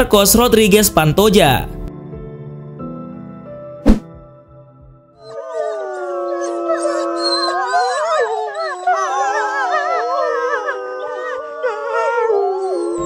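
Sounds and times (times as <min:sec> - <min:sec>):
wolves howling in chorus: 0:05.2 - 0:13.0.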